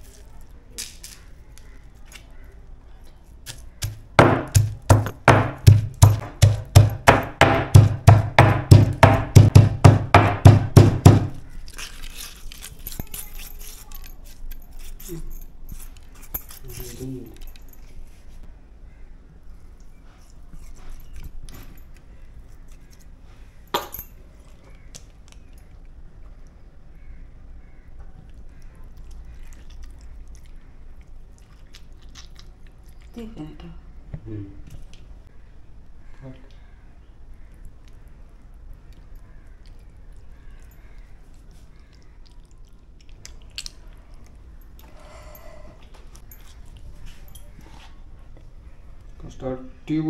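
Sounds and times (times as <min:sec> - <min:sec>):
soft wet squishes: 0:00.0 - 0:04.2, 0:24.3 - 0:33.4, 0:34.1 - 0:49.3.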